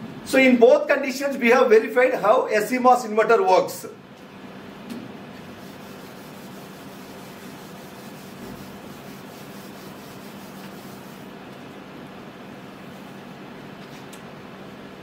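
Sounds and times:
steady low hum: 0.0s - 15.0s
eraser rubbing on whiteboard: 5.4s - 11.3s.

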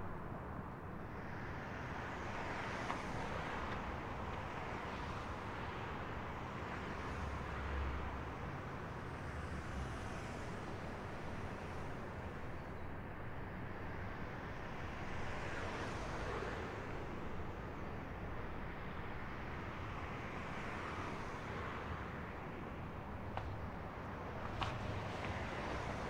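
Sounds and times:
distant traffic hum: 0.0s - 26.0s.

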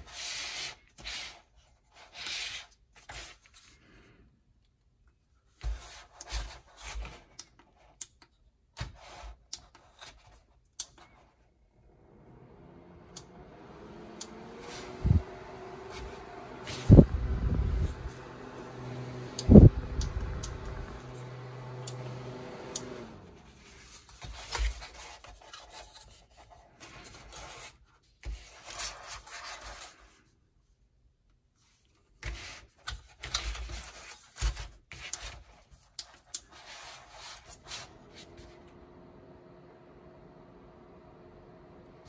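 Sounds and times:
steady hum: 11.8s - 24.0s.

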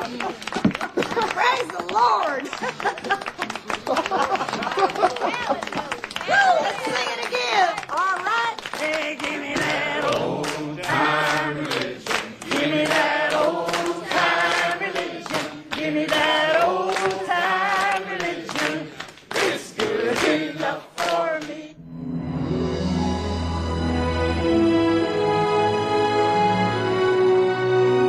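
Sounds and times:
hands clapping on the beat: 0.0s - 21.6s
choir singing gospel: 8.8s - 21.8s.

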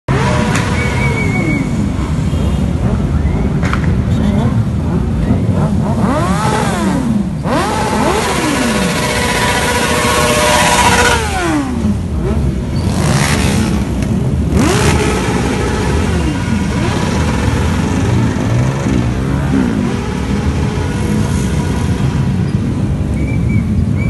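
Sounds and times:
motorcycles revving past: 4.9s - 22.5s.

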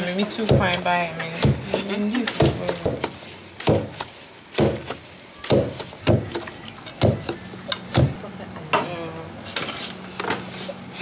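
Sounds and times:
pestle pounding in wooden mortar: 0.0s - 8.2s.

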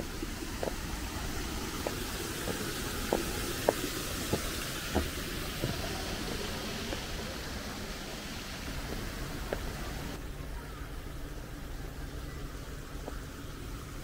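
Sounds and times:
steady outdoor hiss: 0.0s - 14.0s
footsteps walking: 0.6s - 7.2s, 8.7s - 9.8s.

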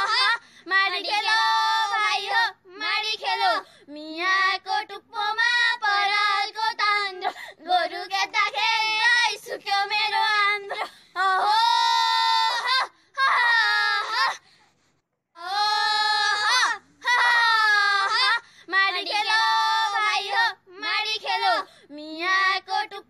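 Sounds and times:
women singing: 0.0s - 14.3s, 15.4s - 23.0s.

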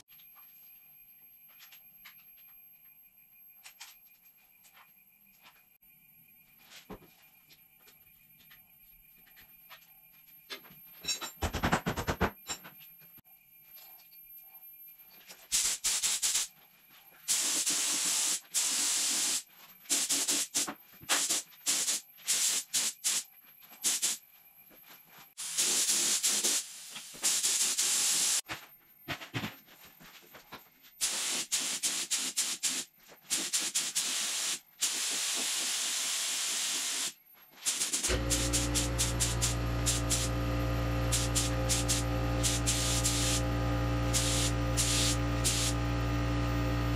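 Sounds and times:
spray gun hissing: 17.3s - 20.6s, 25.4s - 28.4s, 31.0s - 37.1s, 37.7s - 40.4s, 41.1s - 43.5s, 44.1s - 45.8s.

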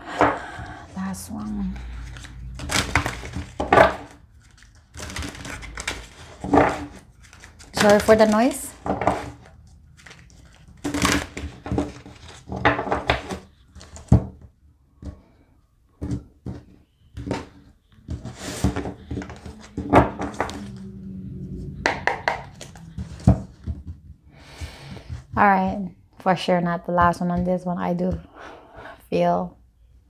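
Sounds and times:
cards riffling and slapping: 1.9s - 8.5s, 9.4s - 14.1s
cards knocking on table: 21.8s - 23.9s.

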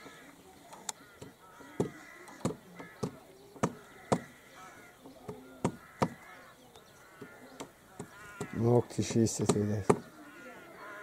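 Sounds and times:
sharp knocks: 1.2s - 4.3s, 5.2s - 6.2s, 7.2s - 8.6s, 9.3s - 10.1s.

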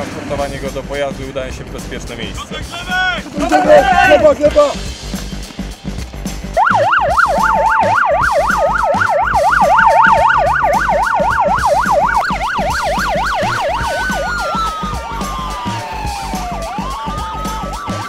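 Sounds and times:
siren in fast yelp: 6.6s - 18.0s
siren tone sliding downward: 6.6s - 18.0s.

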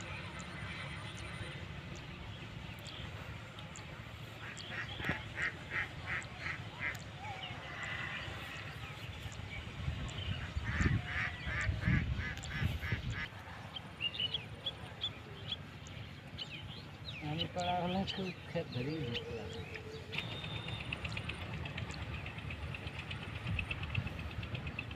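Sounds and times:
waterfowl honking: 4.4s - 7.0s, 10.4s - 13.3s.

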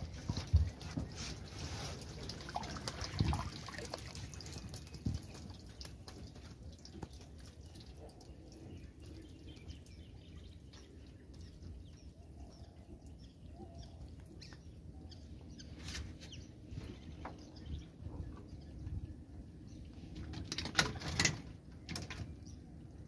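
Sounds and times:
wet net clicks and rustles: 20.2s - 22.3s.

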